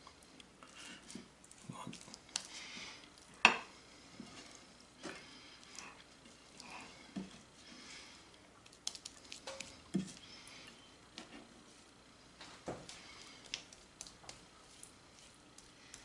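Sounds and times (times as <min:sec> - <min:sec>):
spatula smearing and scraping butter: 0:12.9 - 0:16.0.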